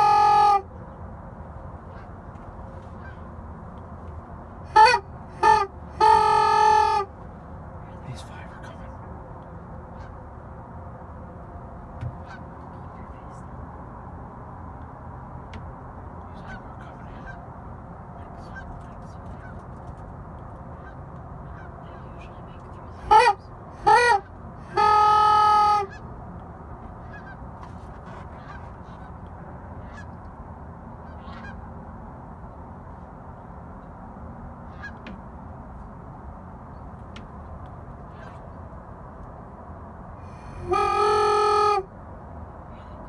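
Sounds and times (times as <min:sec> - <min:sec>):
distant geese honking: 0:00.0 - 0:00.6, 0:02.9 - 0:03.3, 0:09.9 - 0:10.2, 0:12.1 - 0:12.6, 0:16.3 - 0:17.4, 0:20.7 - 0:22.0, 0:23.0 - 0:26.1, 0:27.0 - 0:30.1, 0:31.0 - 0:31.6, 0:34.7 - 0:35.0, 0:38.1 - 0:38.5, 0:40.3 - 0:41.9
goose honking: 0:00.0 - 0:00.6, 0:04.7 - 0:07.1, 0:23.0 - 0:26.0, 0:40.3 - 0:41.9.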